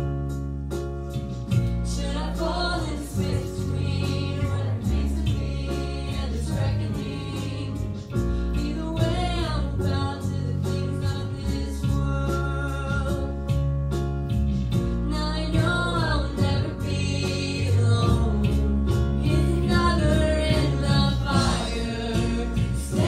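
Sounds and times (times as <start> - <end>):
bass line: 0.0 - 23.0
keyboard: 0.0 - 23.0
woman singing: 8.6 - 13.3, 15.1 - 23.0.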